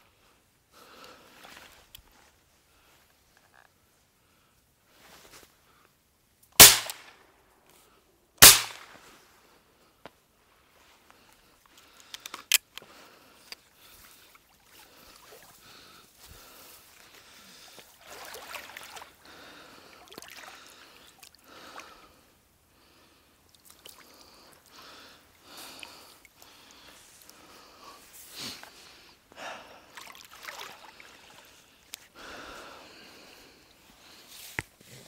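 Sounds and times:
water sloshing and splashing: 14.1s - 15.8s, 16.8s - 21.4s, 29.9s - 31.8s.

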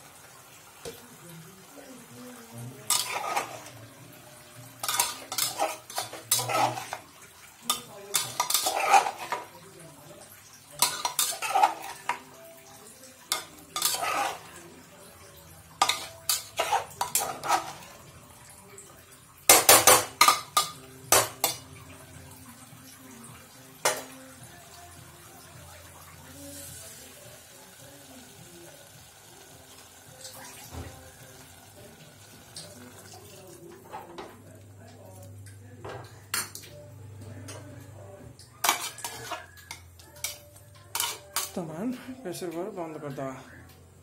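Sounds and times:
metal spatula scraping pot: 2.8s - 3.8s, 4.8s - 9.5s, 10.8s - 12.2s, 13.3s - 14.6s, 15.8s - 18.0s, 38.6s - 41.6s.

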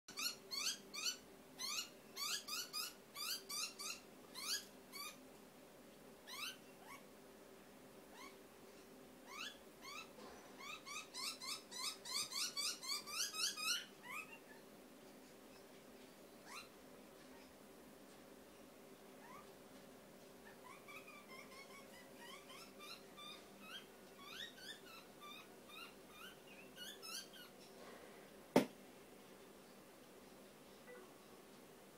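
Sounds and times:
bird chirping: 0.1s - 5.2s, 9.3s - 14.6s, 20.4s - 27.7s.

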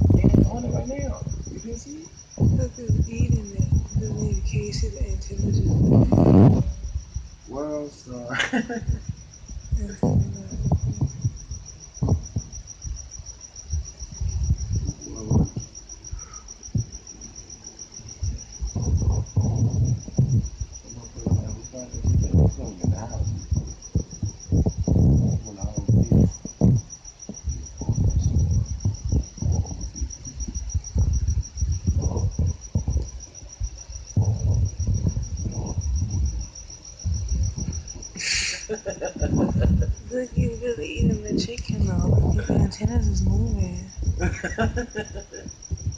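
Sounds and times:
low thumps and rumbles: 0.0s - 38.2s, 38.8s - 45.9s
cricket trilling: 0.0s - 45.9s.

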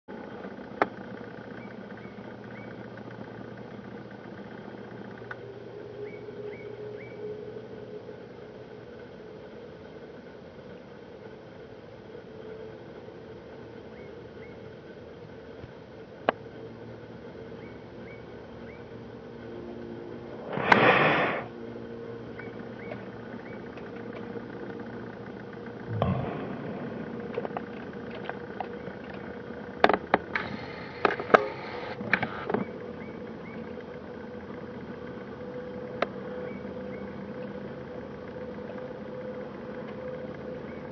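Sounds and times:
distant jet engines humming: 0.1s - 40.9s
brief low thump: 25.9s - 27.8s
loud rush of noise: 25.9s - 28.3s.

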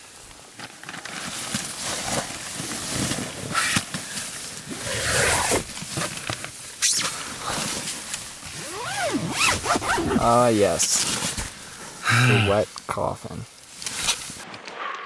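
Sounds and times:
tent fabric rustling: 0.1s - 12.5s, 13.6s - 14.6s
person grunting and breathing heavily: 12.0s - 12.6s.

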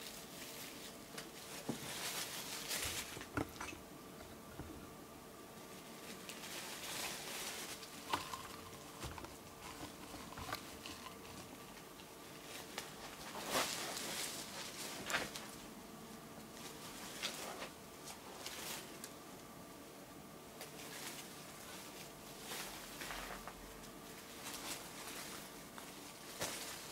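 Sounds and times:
faint rustles: 0.0s - 5.0s, 5.6s - 15.7s, 20.6s - 26.9s
low electrical hum: 0.0s - 26.9s.

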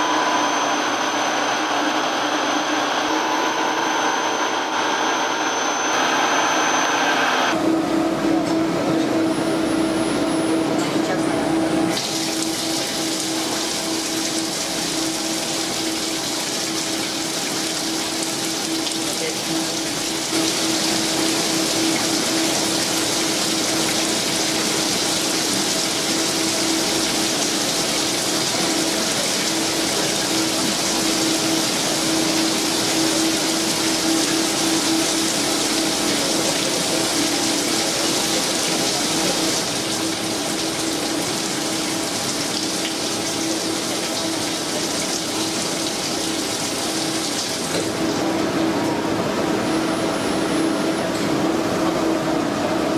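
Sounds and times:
low machine hum: 0.0s - 52.9s.

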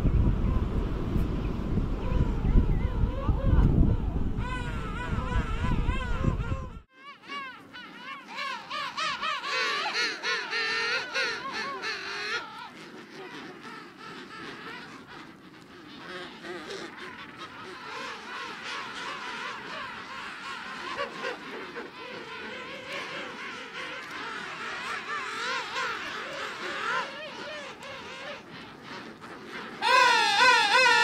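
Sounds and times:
overlapping penguin calls: 2.1s - 31.0s
penguin warbling call: 29.8s - 31.0s.

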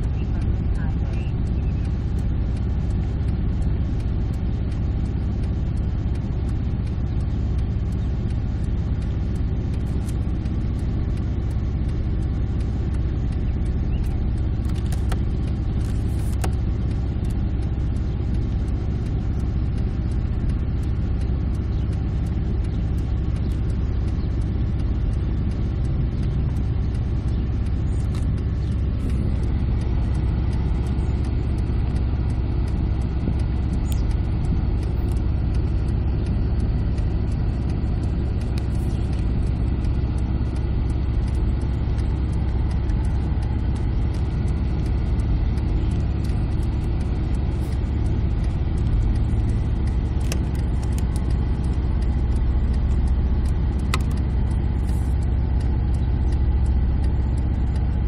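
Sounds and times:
car engine low rumble: 0.0s - 58.0s.

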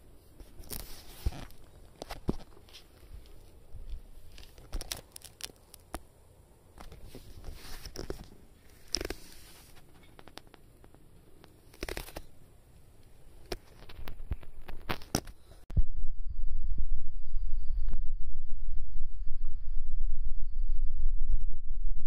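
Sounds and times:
rustling and scuffing on carpet: 0.4s - 4.6s, 6.9s - 9.9s.

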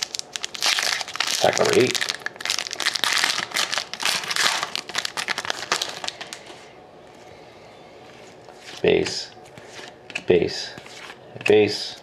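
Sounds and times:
wrapper crinkling and tearing: 0.0s - 6.5s.

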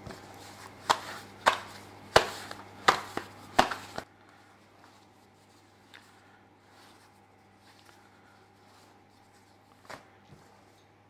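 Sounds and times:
pizza dough slapped by hand: 0.8s - 4.0s.

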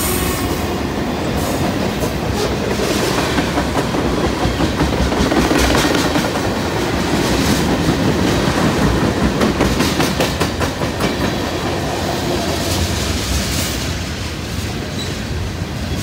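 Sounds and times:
freight train passing: 0.0s - 16.0s
train wheels clacking over rail joints: 1.4s - 11.9s.

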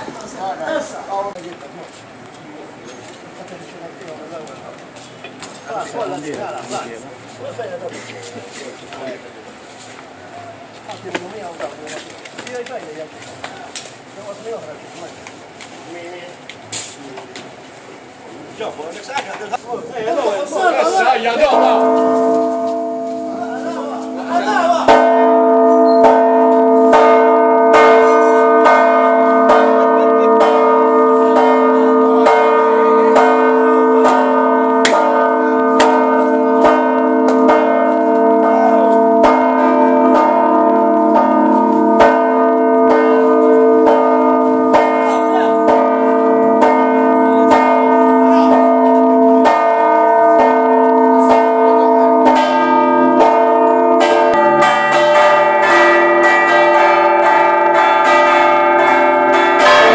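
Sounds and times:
church bells ringing: 20.7s - 59.9s.

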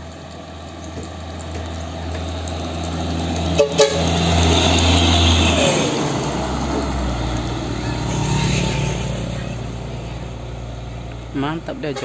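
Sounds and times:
dump truck driving past: 0.0s - 12.0s
truck horn toots: 3.5s - 4.5s.

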